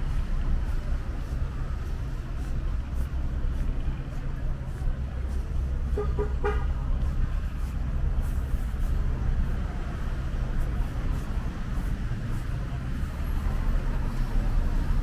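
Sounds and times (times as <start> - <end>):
city street traffic rumble: 0.0 - 15.0
car horn toots: 6.0 - 6.7.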